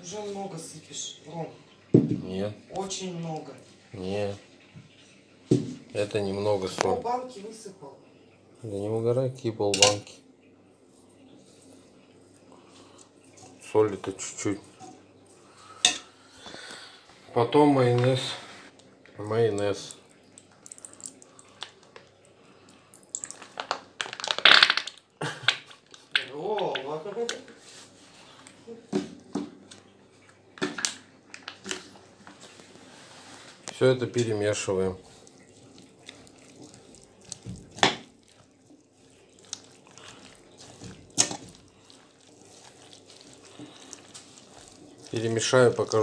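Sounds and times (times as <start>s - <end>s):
wet squelching of mixing food: 8.5s - 46.0s
plastic pouch squeezing and crinkling: 23.1s - 26.2s, 35.1s - 46.0s.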